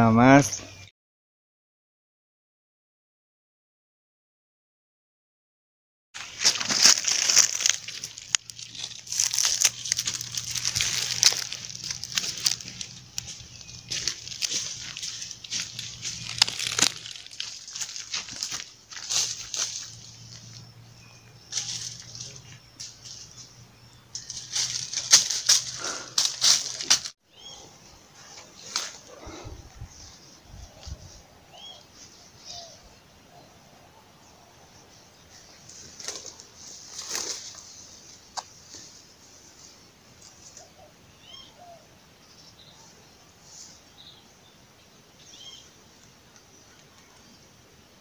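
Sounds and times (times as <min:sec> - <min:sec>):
footsteps crunching dry leaves: 0:06.2 - 0:27.2, 0:35.6 - 0:40.5.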